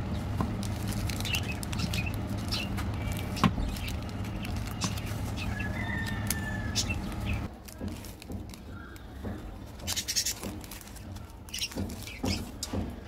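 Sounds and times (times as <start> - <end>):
low steady hum: 0.0 - 7.5
plastic wrappers crinkling: 0.0 - 13.0.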